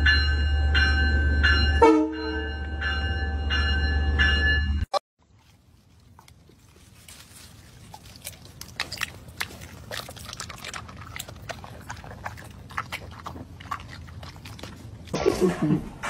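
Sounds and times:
dog chewing wet food: 5.3s - 15.2s.

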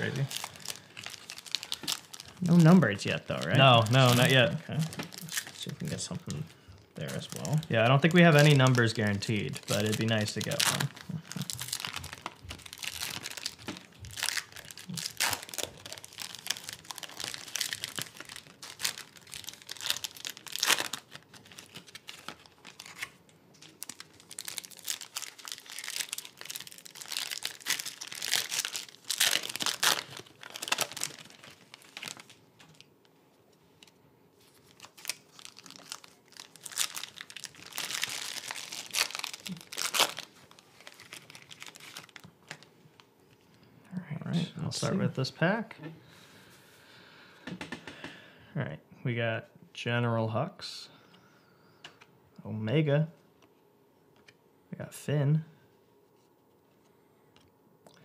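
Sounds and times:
foil wrappers tearing and crinkling: 0.0s - 32.9s, 33.8s - 42.7s.

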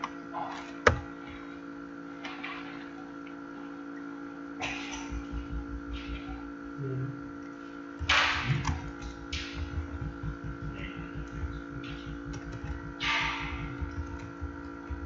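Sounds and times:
electrical hum: 0.0s - 15.0s
soft low thumps: 4.9s - 7.3s, 8.0s - 15.0s.

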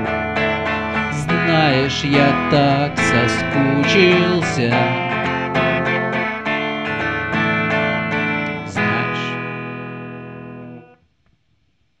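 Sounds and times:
electric guitar strumming chords: 0.0s - 11.0s.

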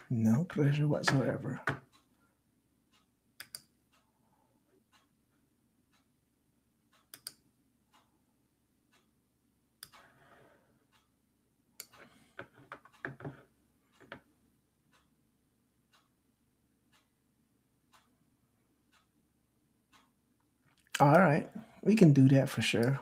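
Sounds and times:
faint regular ticking: 0.1s - 23.0s
clicks and knocks: 11.8s - 14.3s.

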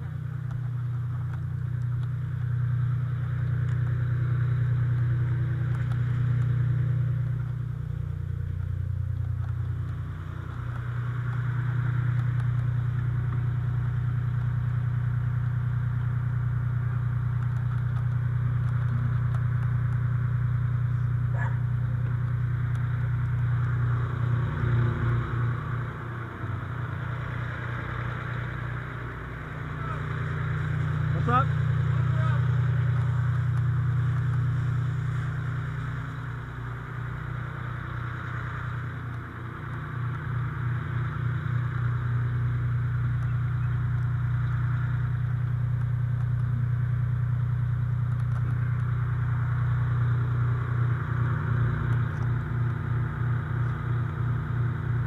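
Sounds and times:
diesel engine running: 0.0s - 55.0s.

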